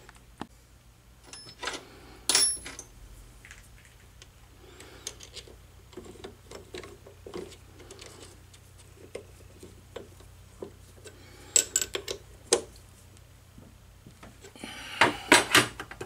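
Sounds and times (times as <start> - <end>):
metal parts clicking and rubbing: 11.0 - 12.7.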